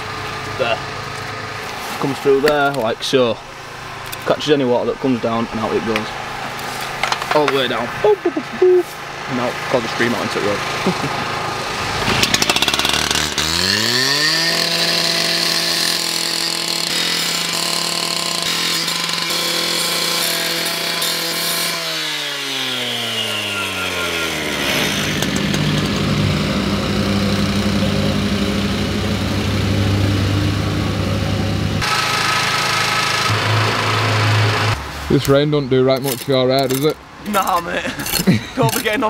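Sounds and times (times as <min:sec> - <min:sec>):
disc cutter screaming: 0:11.4 - 0:34.8
low steady engine hum: 0:25.2 - 0:31.9.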